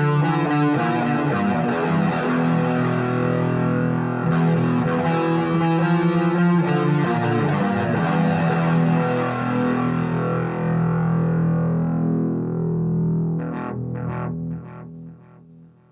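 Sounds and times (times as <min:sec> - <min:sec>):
electric guitar notes: 0:00.0 - 0:15.4.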